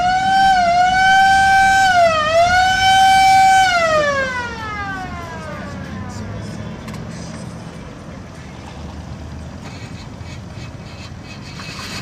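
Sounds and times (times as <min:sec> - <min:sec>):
siren wailing: 0:00.0 - 0:06.3.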